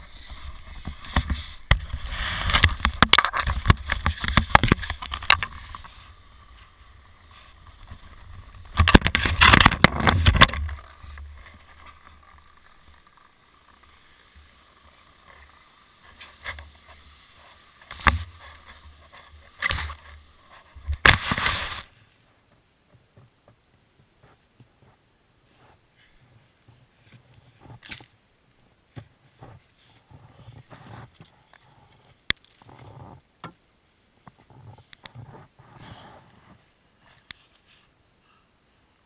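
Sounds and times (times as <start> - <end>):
skis scraping on snow: 0.0 - 22.1
knocks and rubbing on camera: 0.3 - 6.0.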